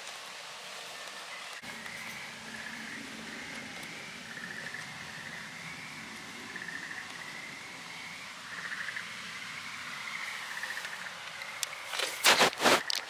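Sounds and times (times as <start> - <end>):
frogs trilling: 1.1 - 13.0.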